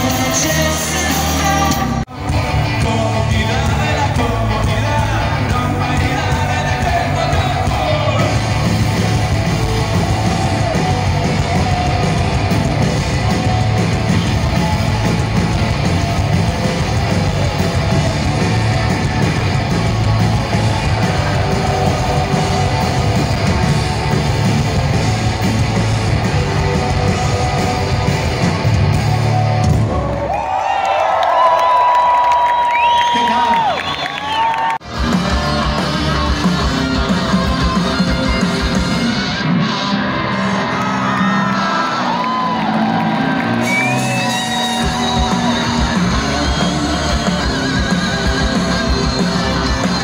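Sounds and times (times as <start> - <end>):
person singing: 0.0 - 9.3, 44.0 - 50.0
live rock music: 0.0 - 30.3, 32.3 - 50.0.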